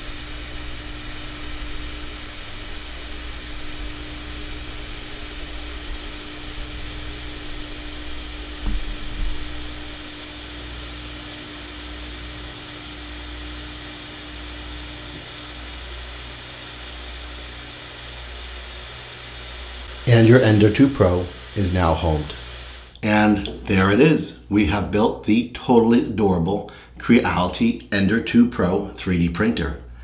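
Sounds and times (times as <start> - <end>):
fan hiss: 0.0 - 30.0
brief knock: 8.6 - 9.4.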